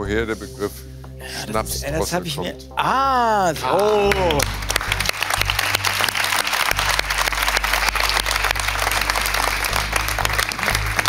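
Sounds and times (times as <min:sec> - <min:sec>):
background music with bass line: 0:00.0 - 0:11.0
audience clapping: 0:03.6 - 0:11.0.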